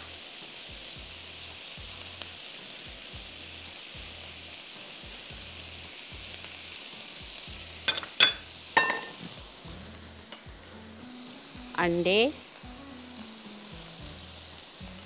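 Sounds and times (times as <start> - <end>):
food sizzling in a pot: 0.0 - 15.0
utensil clinking against pot: 7.9 - 9.2.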